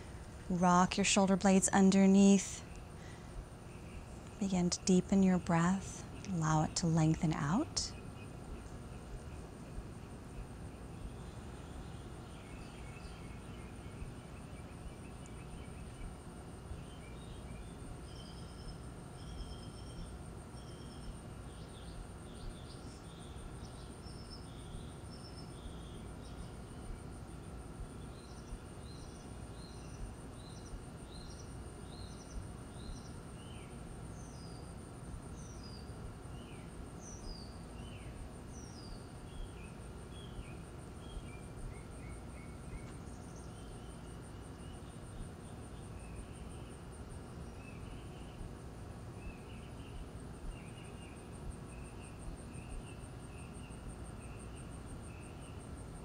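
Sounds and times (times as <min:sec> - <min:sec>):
low background rumble: 0:00.0 - 0:21.2.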